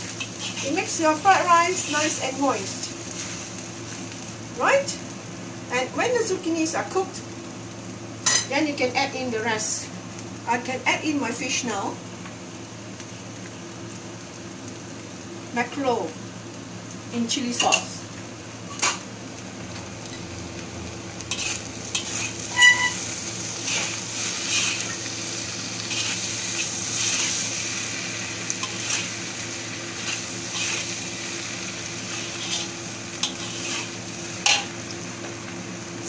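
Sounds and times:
spatula scraping a wok: 0.0s - 2.4s, 3.0s - 3.6s, 18.7s - 19.0s, 21.2s - 25.1s, 25.8s - 34.7s
rice sizzling in a wok: 0.0s - 36.0s.

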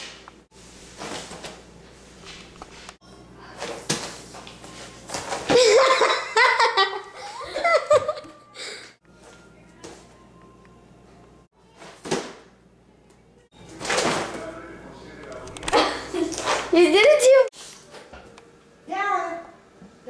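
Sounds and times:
girl laughing and giggling: 5.5s - 8.5s, 15.8s - 17.4s.

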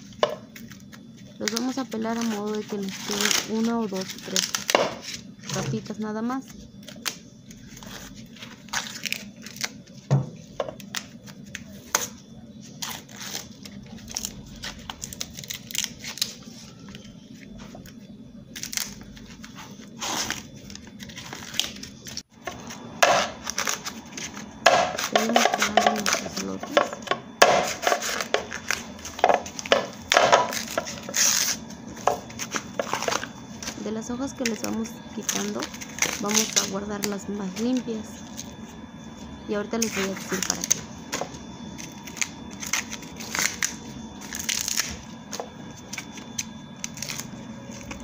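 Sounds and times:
corn husks tearing: 1.4s - 5.2s, 12.7s - 17.0s, 18.6s - 26.9s, 34.4s - 37.9s, 41.8s - 45.0s.

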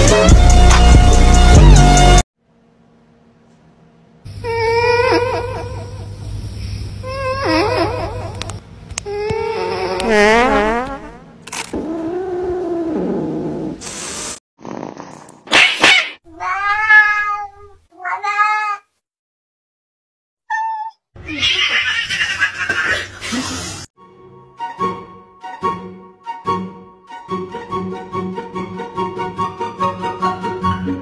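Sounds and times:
cats meowing and yowling: 16.4s - 18.9s.

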